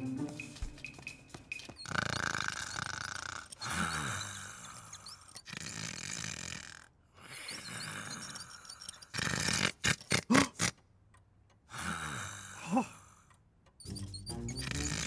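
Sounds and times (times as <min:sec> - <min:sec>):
rasping breaths with groans: 0:01.8 - 0:10.8.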